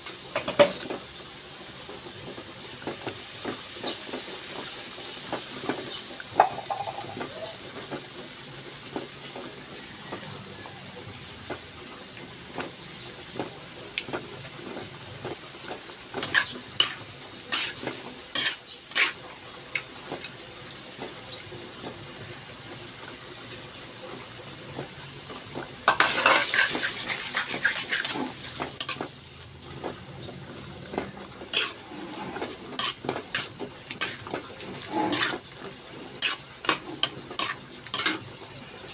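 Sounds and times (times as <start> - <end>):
eggs sizzling in hot pan: 0.0 - 38.9
vegetables sizzling in a wok: 0.0 - 38.9
utensil scraping and clicking on pan: 16.2 - 19.2, 31.0 - 35.4, 36.1 - 38.2.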